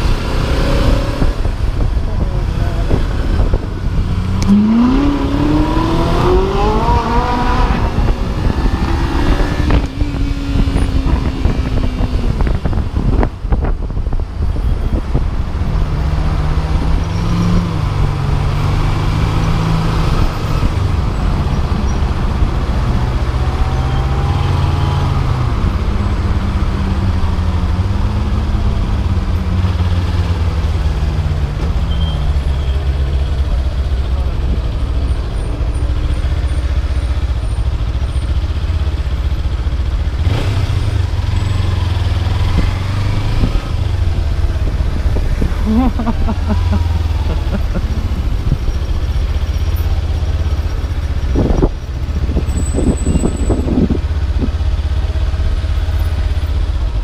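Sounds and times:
motorcycle engine revving: 0.0 - 13.3, 15.6 - 57.0
wind rumble on microphone: 0.6 - 18.7, 41.9 - 46.3, 50.7 - 55.2.

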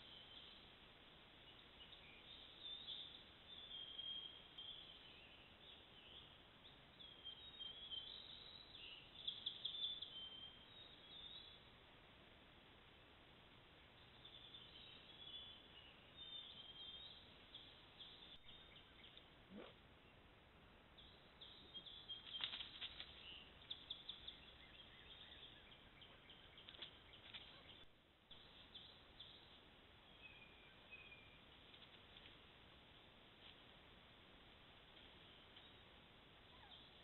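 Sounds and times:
rustles: 0.0 - 37.0
bird chirps: 21.0 - 31.4, 36.5 - 37.0.

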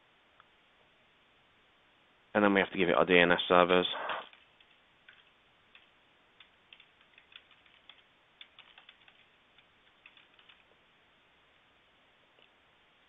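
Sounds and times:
computer keyboard typing: 4.2 - 10.7.

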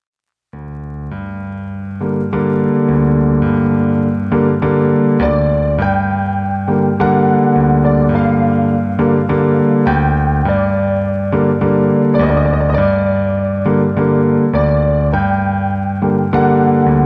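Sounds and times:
electric piano chords: 0.6 - 17.0.

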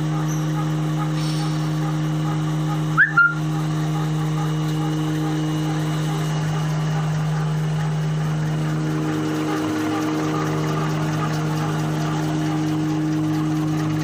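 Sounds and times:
machine electric hum: 0.0 - 14.0.

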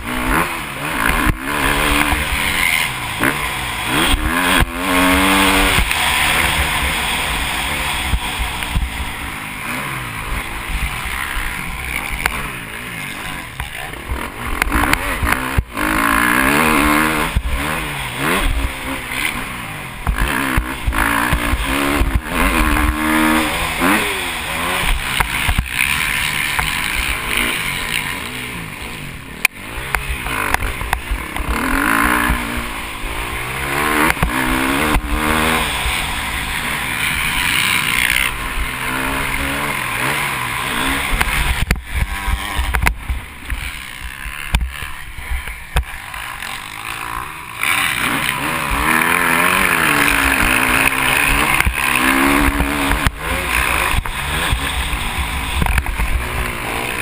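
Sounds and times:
motocross engine revving: 0.0 - 57.0.

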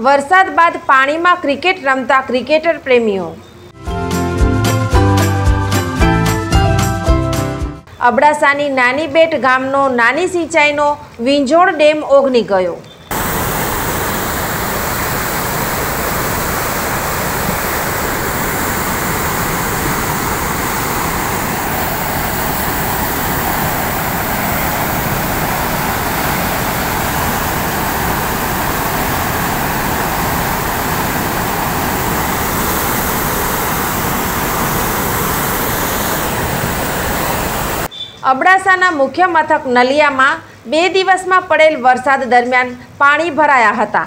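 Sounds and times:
water rushing over rocks: 13.1 - 37.9.

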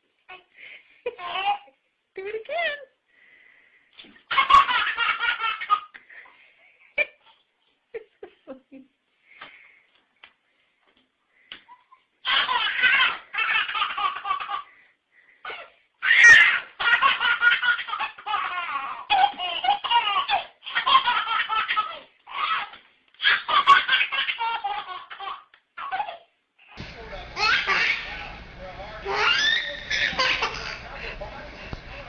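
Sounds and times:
baby laughing: 1.1 - 1.8, 4.2 - 6.2, 11.5 - 26.8, 27.4 - 28.2, 29.0 - 31.0.

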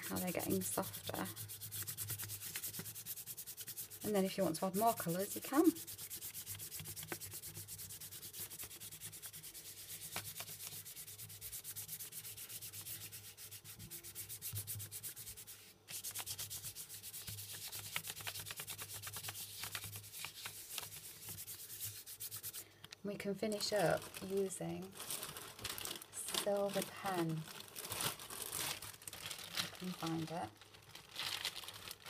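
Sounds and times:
chalk pastel scratching on paper: 0.0 - 22.7.

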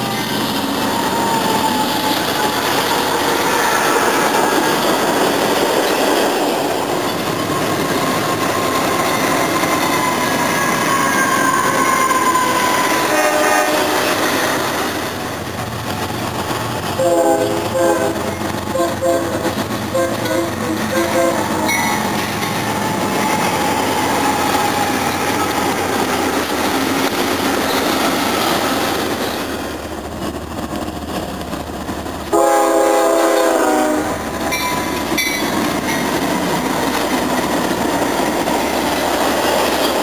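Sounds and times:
freight train rolling past: 0.0 - 40.0
locomotive horn chord: 13.0 - 14.2, 17.0 - 21.8, 32.3 - 34.2.

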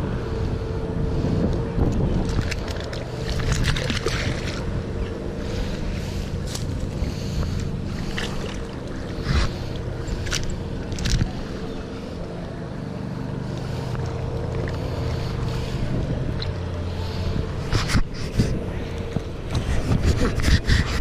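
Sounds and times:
wind buffeting microphone: 0.0 - 13.4, 14.0 - 21.0
water splashing: 2.2 - 12.2.

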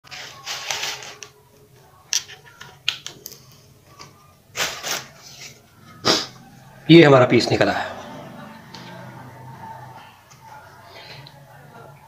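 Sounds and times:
plastic sheet crinkling: 0.0 - 1.4.

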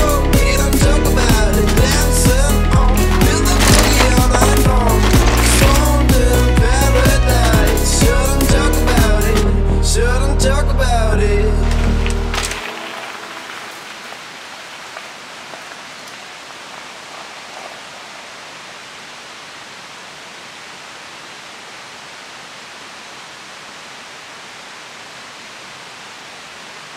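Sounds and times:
outdoor ambience hiss: 11.6 - 26.9.

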